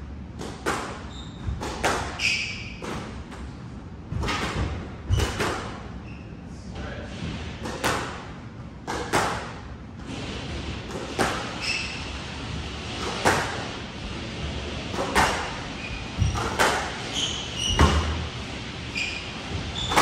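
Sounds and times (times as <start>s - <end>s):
squash ball striking rackets and walls: 0.2s - 6.0s, 7.2s - 9.8s, 10.5s - 13.8s, 14.8s - 20.0s
shoes squeaking on wooden floor: 1.0s - 3.1s, 15.8s - 18.2s, 18.9s - 20.0s.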